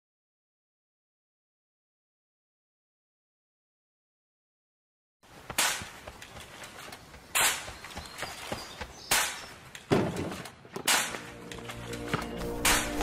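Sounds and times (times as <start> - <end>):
sharp cracks: 5.5 - 8.0, 9.0 - 11.4, 12.6 - 13.0.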